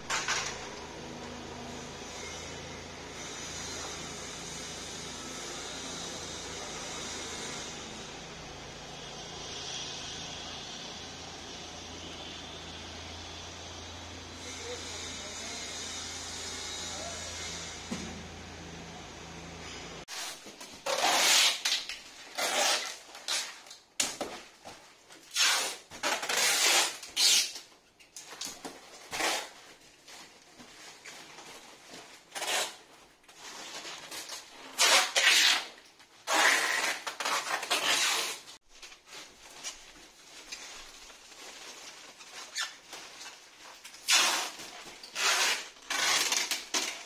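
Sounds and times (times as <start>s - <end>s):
paper rustling and crinkling: 35.9s - 47.0s.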